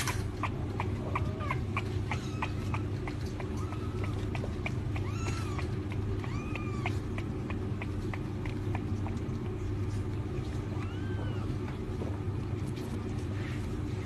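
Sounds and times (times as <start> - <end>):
kitten mewing: 0.0 - 9.6, 10.5 - 11.8
steady low hum: 0.0 - 14.0.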